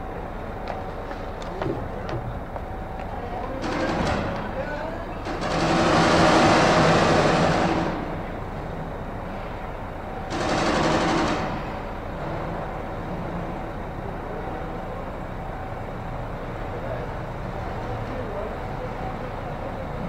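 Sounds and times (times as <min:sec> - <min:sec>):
cars rattling over metal ramp: 0:03.5 - 0:13.8.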